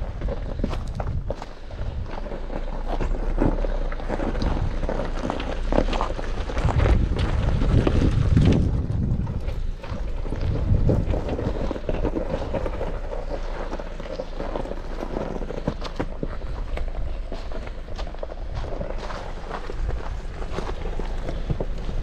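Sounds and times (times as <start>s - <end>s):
wind buffeting microphone: 0.0s - 3.0s, 4.2s - 14.5s
gravel crunching under tyres: 0.0s - 22.0s
low steady engine note: 0.0s - 22.0s.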